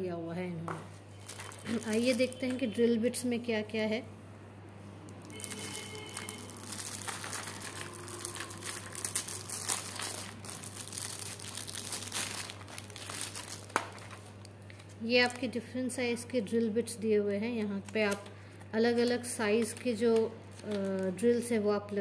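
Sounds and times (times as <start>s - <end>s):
plastic film crinkling: 1.1s - 2.7s, 5.1s - 15.6s, 17.6s - 22.0s.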